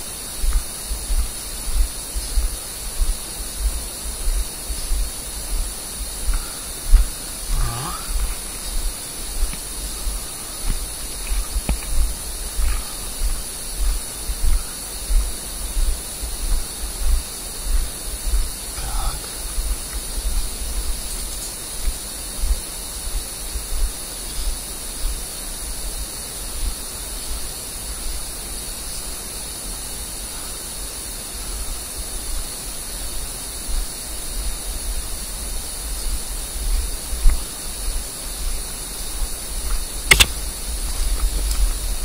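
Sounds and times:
wind rumble on microphone: 0.0 - 28.2, 32.3 - 42.0
sharp click: 40.1 - 40.4.

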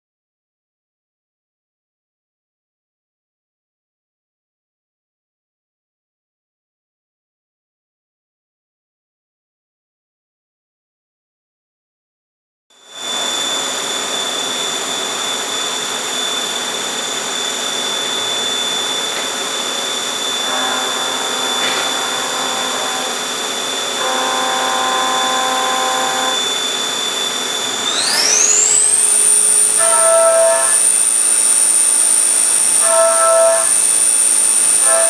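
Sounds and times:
milling machine whine: 12.8 - 35.0.

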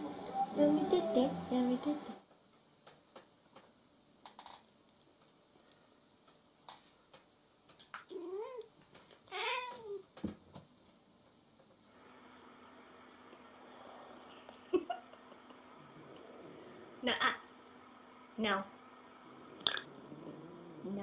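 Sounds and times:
cat meowing: 9.3 - 10.0.

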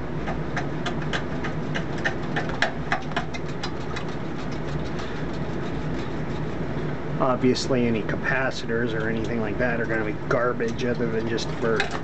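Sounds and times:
low mechanical drone: 0.0 - 12.0.

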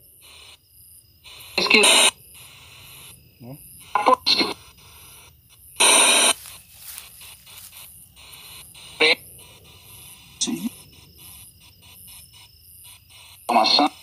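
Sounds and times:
static bursts: 1.2 - 3.2, 3.8 - 14.0
radio static sweeping stations: 1.3 - 3.1, 5.8 - 9.6.

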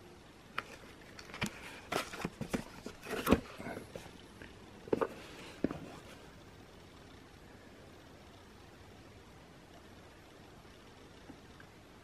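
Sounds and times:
cardboard box rustling and tapping: 1.3 - 4.1, 4.9 - 6.1.

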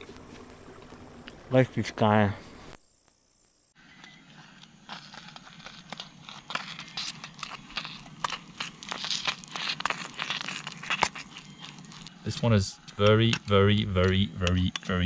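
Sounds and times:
steady low hum: 0.0 - 15.0
plastic packet crinkling: 4.9 - 12.2.

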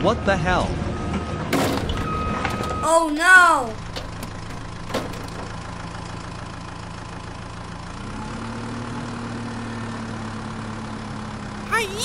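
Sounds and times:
tractor engine idling: 2.0 - 9.5.

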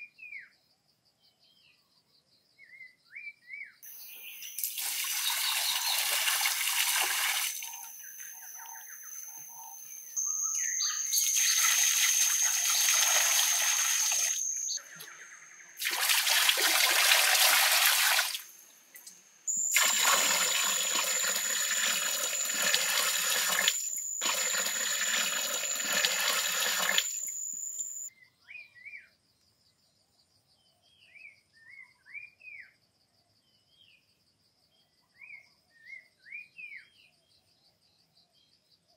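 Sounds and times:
birds chirping softly: 0.0 - 15.9, 24.4 - 38.9
water pouring into a pond: 3.9 - 7.9, 11.1 - 14.8, 15.8 - 18.6, 19.5 - 27.5.

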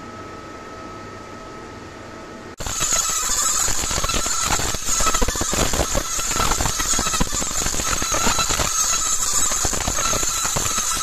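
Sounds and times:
fine crackle of sparks: 2.6 - 11.0
laser machine high whine: 2.6 - 11.0.

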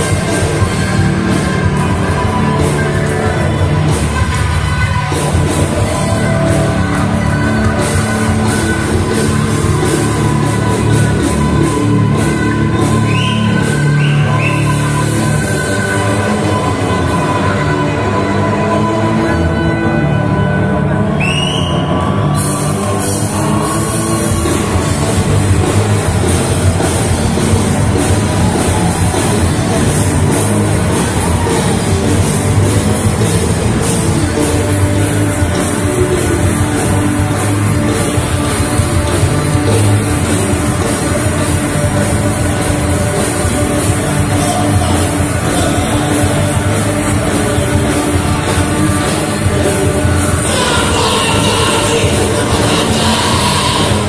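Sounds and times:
drums with cymbal and snare hits: 0.0 - 17.4, 21.2 - 54.0
electric guitars: 0.0 - 54.0
live rock band playing: 0.0 - 54.0.

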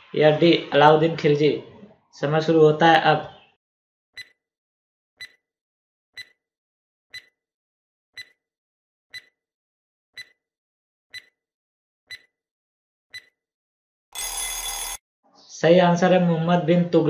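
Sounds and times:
countdown timer ticks: 4.2 - 4.4, 5.2 - 5.4, 6.2 - 6.4, 7.1 - 7.3, 8.2 - 8.4, 9.1 - 9.3, 10.2 - 10.4, 11.1 - 11.4, 12.1 - 12.3, 13.1 - 13.3
harsh buzzer alarm: 14.2 - 15.0.

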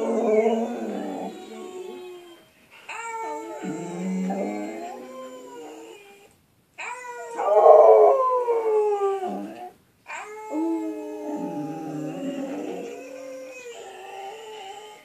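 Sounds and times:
dog howling: 0.0 - 2.3, 3.2 - 5.8, 7.2 - 9.7, 10.4 - 14.8.

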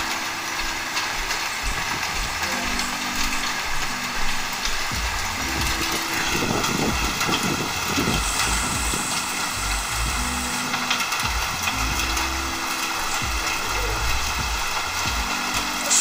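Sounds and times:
heavy rain pouring: 0.0 - 16.0
low rumble: 1.6 - 12.6
wind gusting on microphone: 4.8 - 10.4.

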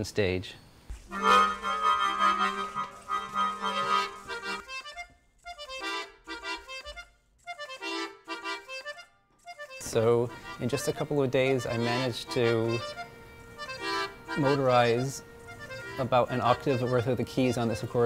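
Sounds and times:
accordion chords: 0.9 - 18.0.

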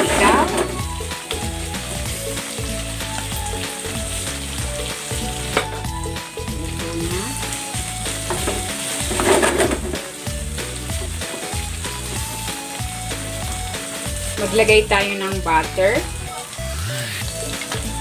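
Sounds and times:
food sizzling in a pan: 0.0 - 18.0
soft background music: 0.0 - 18.0
wooden spatula scraping a pan: 8.3 - 10.1.

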